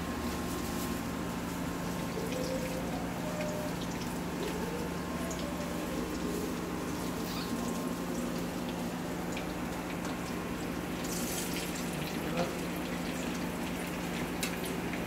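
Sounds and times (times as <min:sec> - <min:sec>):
cooker hum: 0:00.0 - 0:15.0
food sizzling in oil: 0:10.4 - 0:12.0.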